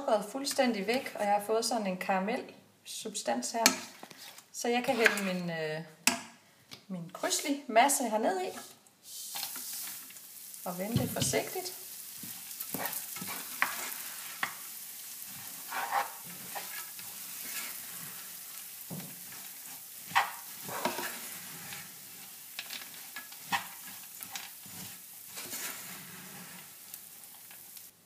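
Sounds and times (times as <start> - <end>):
spatula scraping frying pan: 3.7 - 5.4, 11.2 - 27.9
steady sizzle: 8.5 - 28.0.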